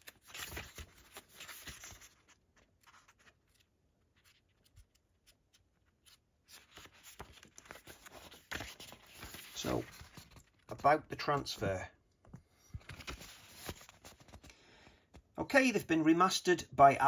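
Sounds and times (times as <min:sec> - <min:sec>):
paper pages rustling and turning: 0:00.0 - 0:15.3.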